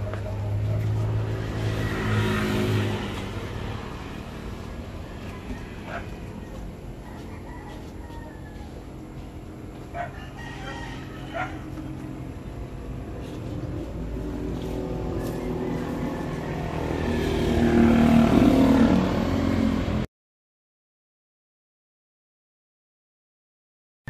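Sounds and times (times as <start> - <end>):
passing vehicle engine: 0.0 - 20.1
chickens calling: 5.0 - 12.4, 15.0 - 17.3.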